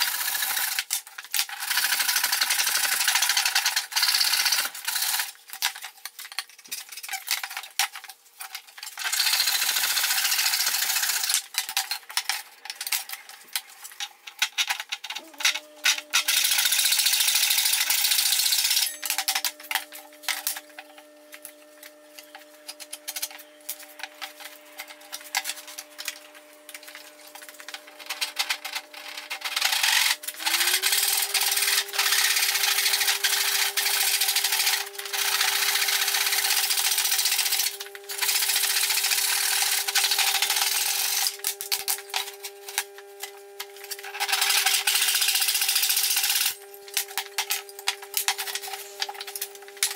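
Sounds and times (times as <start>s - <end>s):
handsaw cutting wood: 15.0s - 21.2s, 24.4s - 42.2s.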